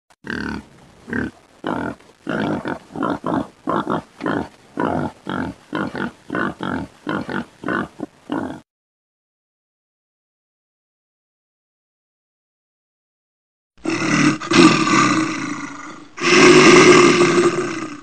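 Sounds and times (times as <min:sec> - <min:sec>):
pig grunting: 0:00.2 - 0:08.6, 0:13.8 - 0:18.0.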